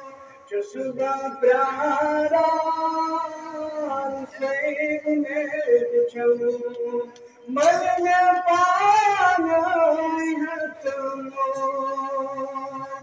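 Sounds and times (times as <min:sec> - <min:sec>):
man singing devotional song: 0:00.0 - 0:13.0.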